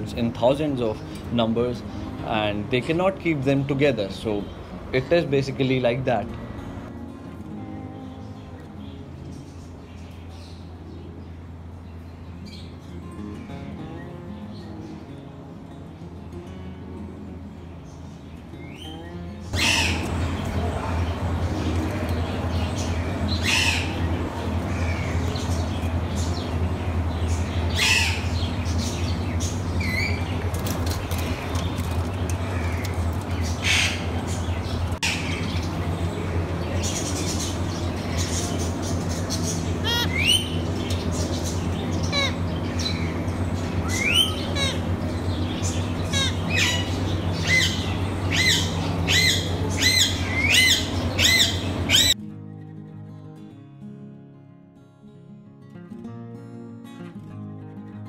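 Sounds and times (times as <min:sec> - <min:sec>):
steady low hum: 0:00.0 - 0:52.2
parakeets screeching: 0:18.7 - 0:52.2
parakeet chirps: 0:19.6 - 0:20.2, 0:36.8 - 0:52.2.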